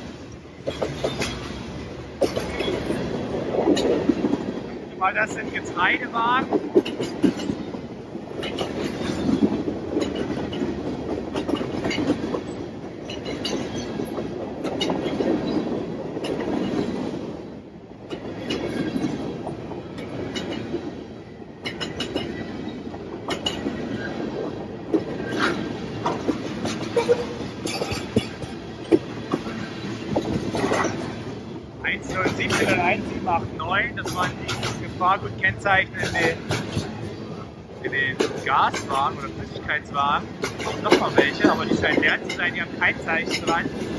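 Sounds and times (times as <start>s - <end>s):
steel wheels rumbling on rail: 0.0s - 43.9s
wheels clacking over rail joints: 0.0s - 43.9s.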